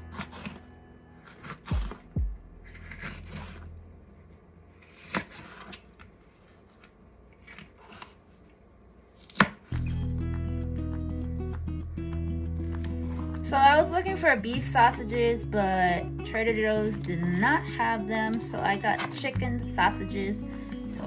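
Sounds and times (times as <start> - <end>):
background music: 0.0 - 3.5, 9.7 - 21.0.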